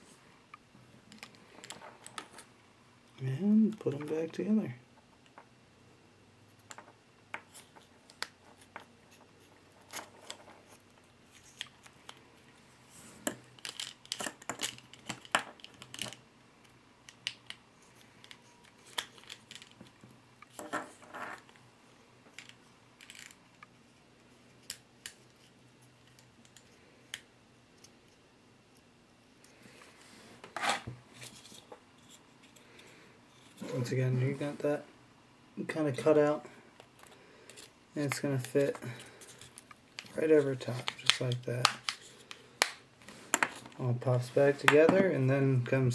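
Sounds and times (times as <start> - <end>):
small parts clicking: 13.2 - 17.6.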